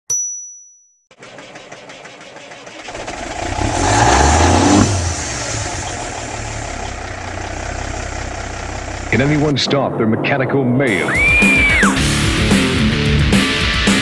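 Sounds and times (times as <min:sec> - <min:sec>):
engine revving: 0:01.1 - 0:10.2.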